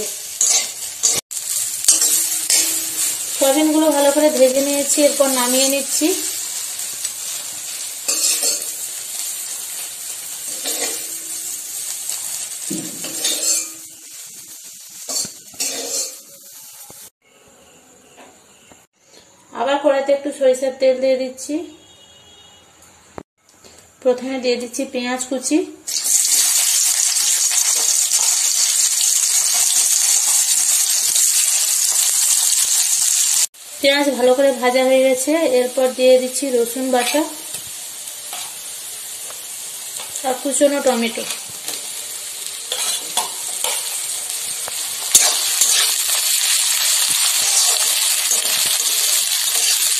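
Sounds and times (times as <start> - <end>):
food sizzling in hot oil: 0.0 - 17.2, 25.9 - 49.9
metal spoon scraping pan: 0.4 - 1.2, 10.5 - 11.3, 13.0 - 13.8, 15.1 - 16.2, 42.7 - 44.0, 45.0 - 46.1.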